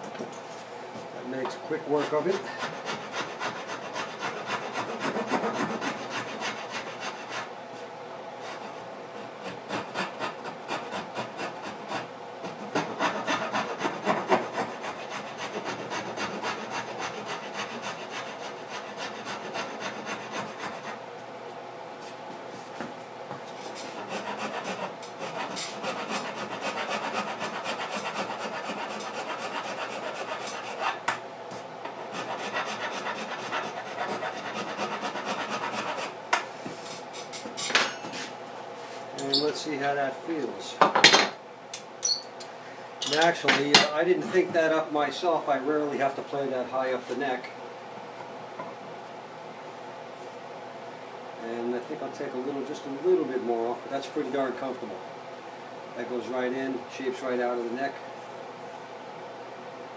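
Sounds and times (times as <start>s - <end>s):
hand rasp scraping wood: 1.8s - 7.5s, 8.4s - 21.0s, 23.8s - 31.1s, 32.1s - 36.2s.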